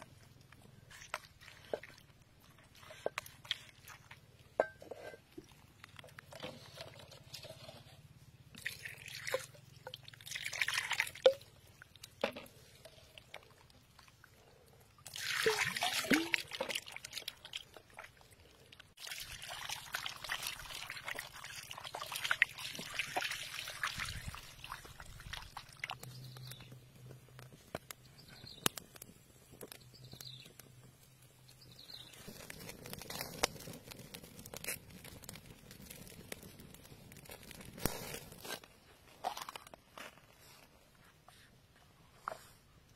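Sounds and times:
water splashing: 0:08.6 - 0:11.5, 0:15.1 - 0:18.0.

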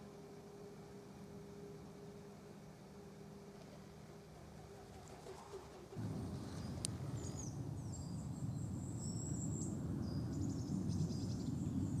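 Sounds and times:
low rumbling noise: 0:06.0 - 0:12.0.

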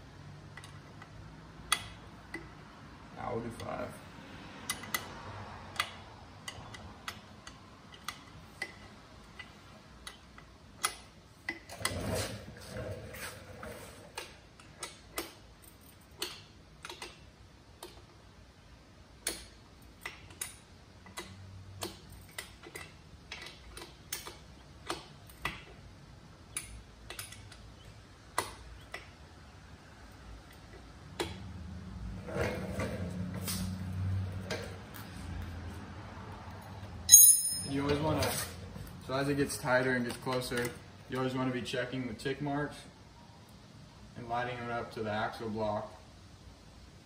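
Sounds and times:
wrench clicking on bolts: 0:04.6 - 0:11.7, 0:19.2 - 0:25.8.

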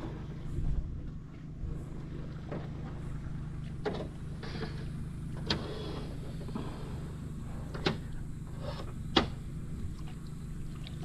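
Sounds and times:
boat motor humming: 0:00.0 - 0:11.0
water sloshing: 0:09.8 - 0:11.0.

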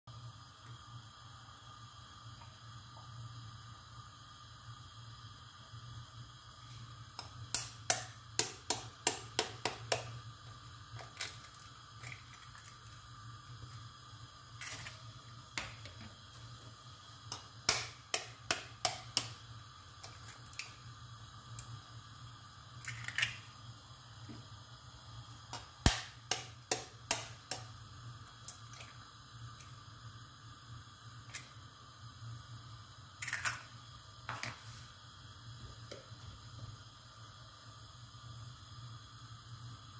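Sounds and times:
eggshells clicking on frying pan: 0:07.1 - 0:10.2, 0:10.9 - 0:13.0, 0:17.2 - 0:20.9, 0:22.8 - 0:23.5, 0:25.5 - 0:29.0, 0:33.2 - 0:34.5.

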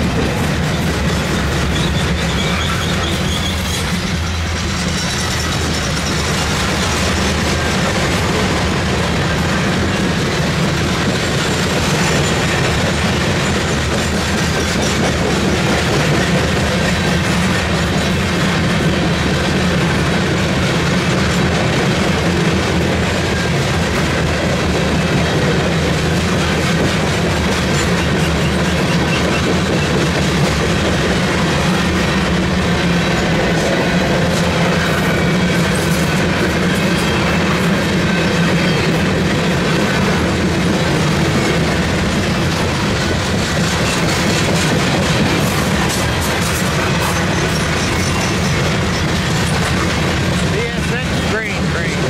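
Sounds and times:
steel train wheels rumbling on rail: 0:00.0 - 0:52.0.

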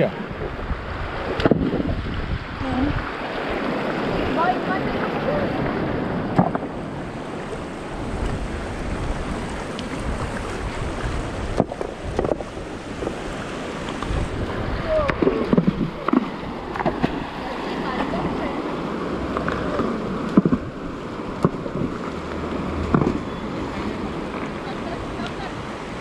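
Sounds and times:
river rushing over stones: 0:00.0 - 0:26.0
stones splashing into water: 0:15.1 - 0:17.3.

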